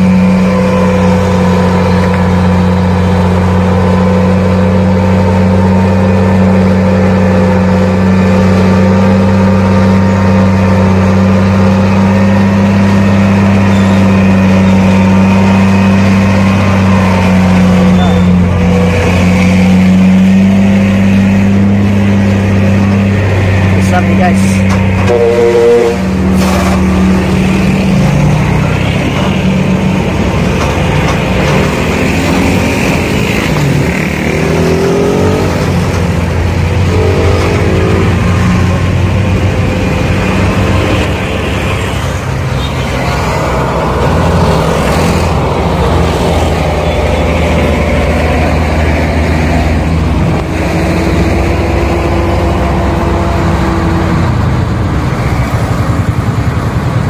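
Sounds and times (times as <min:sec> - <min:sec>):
truck diesel engines revving: 0:00.0 - 0:57.0.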